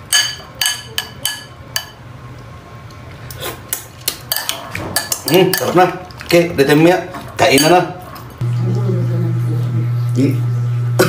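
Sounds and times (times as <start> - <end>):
metal spoon clinking on ceramic bowl: 0.1 - 2.0, 4.3 - 5.8, 7.5 - 7.8.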